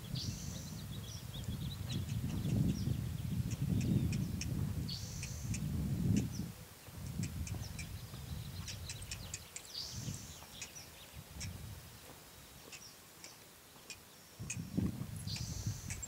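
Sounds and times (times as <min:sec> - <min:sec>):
small birds chirping: 0:00.0 - 0:16.0.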